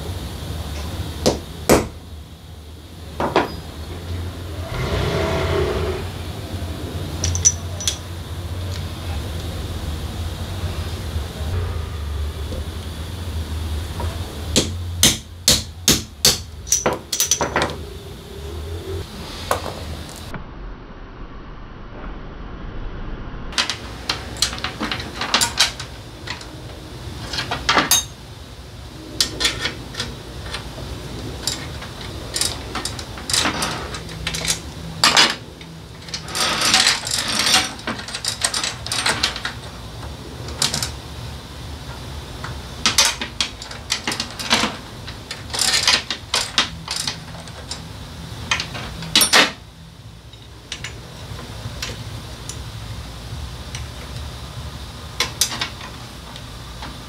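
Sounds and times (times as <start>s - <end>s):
steady low hum: 0.0s - 57.0s
drive chain clinking: 7.2s - 8.1s, 27.2s - 28.2s, 31.3s - 39.7s, 42.8s - 47.9s.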